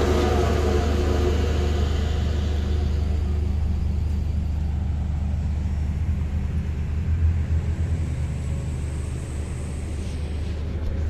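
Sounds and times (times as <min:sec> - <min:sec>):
pile driver machinery rumble: 0:00.0 - 0:11.0.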